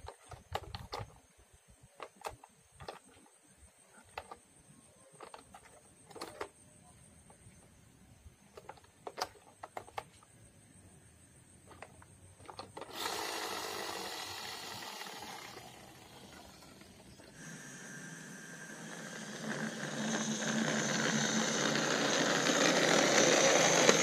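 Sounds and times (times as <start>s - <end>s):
plastic toy clicks and knocks: 0.0s - 1.1s, 2.0s - 3.2s, 5.1s - 6.6s, 8.5s - 10.2s, 11.7s - 13.1s
toy car whirring: 5.2s - 6.5s, 11.7s - 24.0s.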